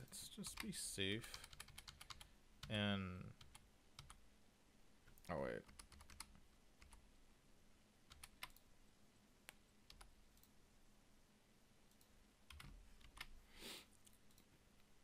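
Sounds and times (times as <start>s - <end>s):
computer keyboard and mouse clicks: 1.3s - 2.8s, 5.1s - 7.0s, 8.1s - 8.7s, 9.5s - 10.5s, 11.9s - 13.3s.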